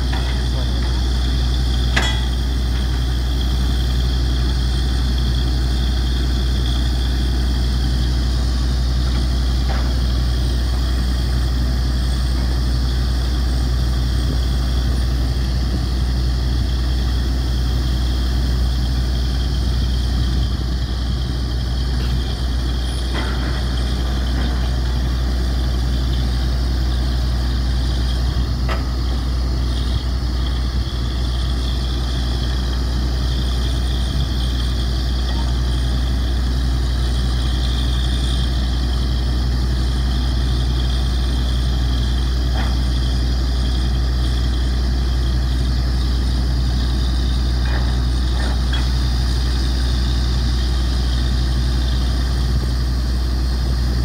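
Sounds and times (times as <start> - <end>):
drilling rig engine drone: 0.0 - 54.0.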